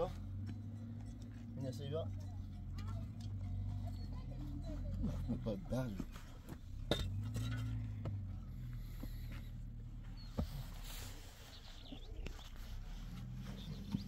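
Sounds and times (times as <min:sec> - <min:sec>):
hands working loose soil: 0:07.2 - 0:14.0.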